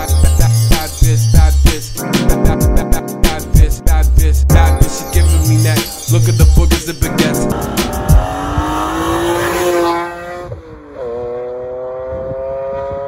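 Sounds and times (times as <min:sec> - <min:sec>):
hip-hop music with heavy bass: 0:00.0 - 0:10.6
car engine revving: 0:07.3 - 0:13.0.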